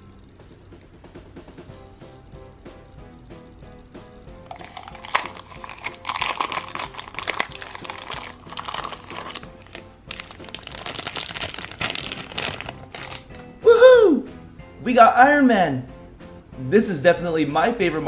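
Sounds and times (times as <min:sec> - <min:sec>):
quiet background music: 0:00.0 - 0:18.0
plastic bag crinkling: 0:04.5 - 0:13.4.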